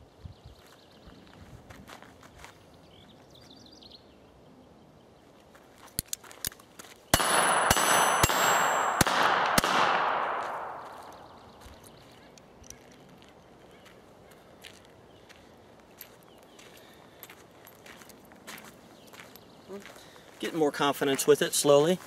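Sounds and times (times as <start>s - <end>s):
high ringing: 7.2s - 9.1s
revolver gunshots: 7.2s - 11.4s.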